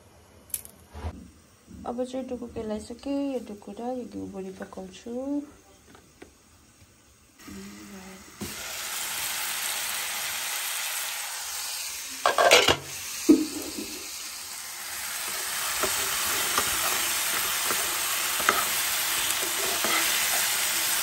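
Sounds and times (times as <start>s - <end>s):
vegetables sizzling in a frying pan: 1.3s - 21.0s
spatula scraping and tapping: 15.3s - 20.5s.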